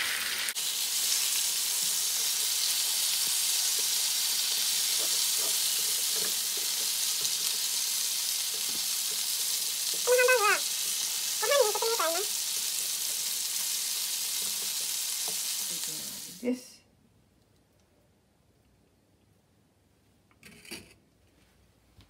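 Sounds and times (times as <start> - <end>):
meat sizzling in a frying pan: 0.0 - 16.5
wooden spatula scraping: 4.6 - 7.8.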